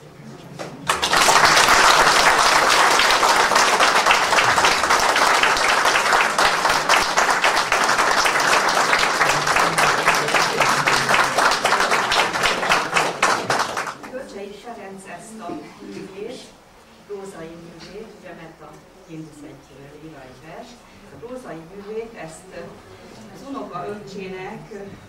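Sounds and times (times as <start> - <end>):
audience applauding: 0.8 - 14.1.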